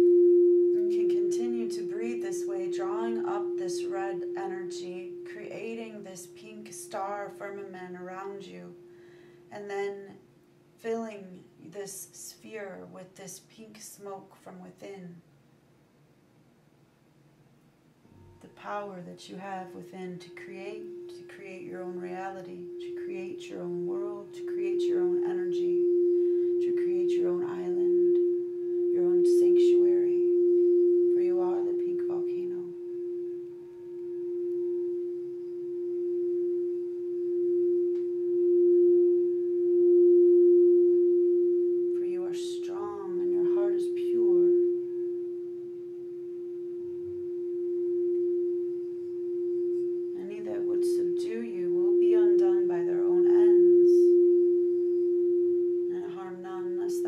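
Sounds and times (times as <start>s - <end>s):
crystal singing bowl ringing: 0.0s - 9.5s, 19.8s - 57.0s.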